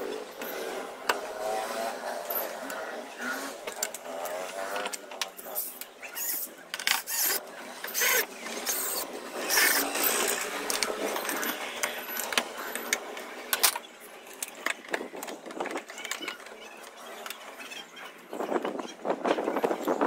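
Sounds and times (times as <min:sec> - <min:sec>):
tools and metal parts clicking: 0:03.6 - 0:17.8.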